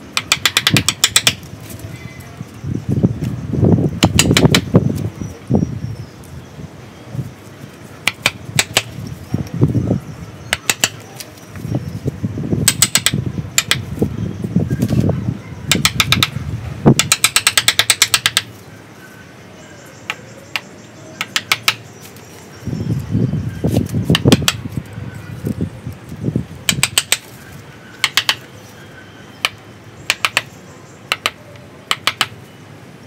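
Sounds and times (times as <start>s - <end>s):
chisel strikes clicking: 0.1s - 1.4s, 4.0s - 4.7s, 8.0s - 9.0s, 10.5s - 11.0s, 12.6s - 13.9s, 15.7s - 18.5s, 20.1s - 21.9s, 24.1s - 24.6s, 26.6s - 27.3s, 28.0s - 28.5s, 29.4s - 32.4s.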